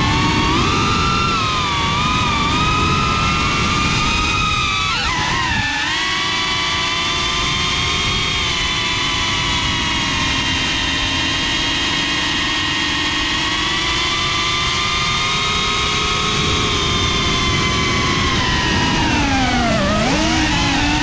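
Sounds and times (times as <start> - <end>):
wind rush: 0.0 - 5.8, 15.6 - 21.0
drone motors whining: 0.0 - 21.0.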